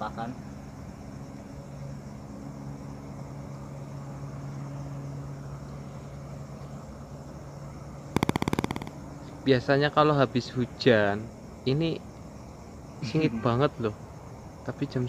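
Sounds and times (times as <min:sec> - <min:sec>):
steady low hum: 0:05.8 - 0:09.3
rapid rattle of clicks: 0:08.2 - 0:09.0.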